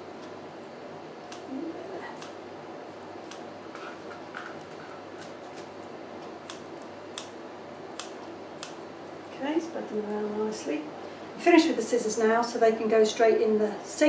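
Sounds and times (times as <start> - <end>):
scissors snipping: 1.3 - 1.5, 2.1 - 2.4, 3.2 - 3.4, 5.2 - 8.8.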